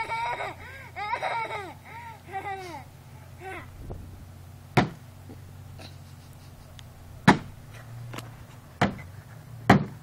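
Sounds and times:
toy bat hitting hollow plastic: 4.8s - 5.0s, 7.2s - 7.5s, 9.7s - 10.0s.

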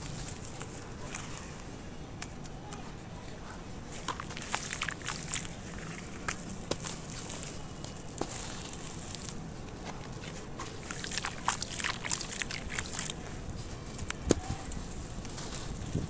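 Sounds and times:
hands crumbling dry clay in water: 3.9s - 16.0s.

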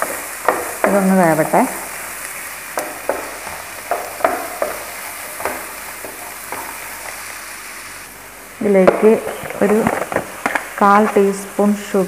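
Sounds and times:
food sizzling in a frying pan: 0.0s - 12.0s
wooden spatula scraping a pan: 2.3s - 7.7s, 8.6s - 11.5s.

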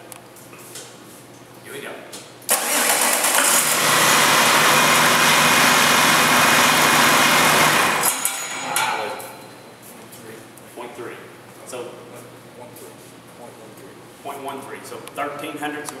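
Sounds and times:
diesel engine starting and running: 2.5s - 8.6s.

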